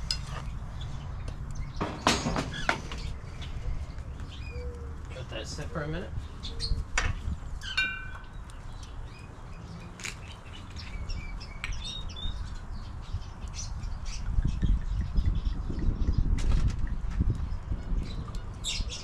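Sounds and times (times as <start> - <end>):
small birds chirping: 0.0 - 19.0
wind rumble on microphone: 0.0 - 19.0.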